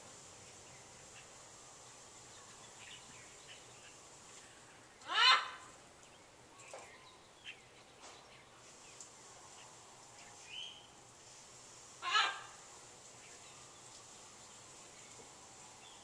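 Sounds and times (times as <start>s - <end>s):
faint short bird calls: 5.0s - 5.7s
parrot squawking: 5.0s - 5.7s, 12.0s - 12.6s.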